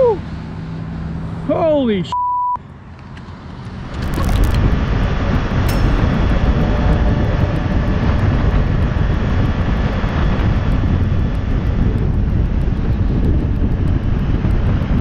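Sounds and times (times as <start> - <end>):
road noise: 0.0 - 15.0
wind rushing on microphone: 3.3 - 15.0
motorcycle engine: 3.4 - 15.0.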